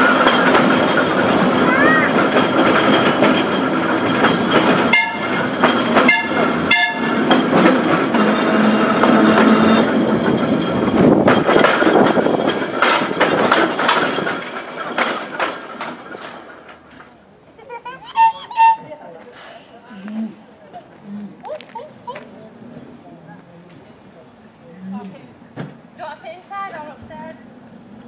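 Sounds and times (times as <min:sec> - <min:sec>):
clicking from rails: 0:00.0 - 0:17.3
electric tram running on track: 0:00.0 - 0:28.0.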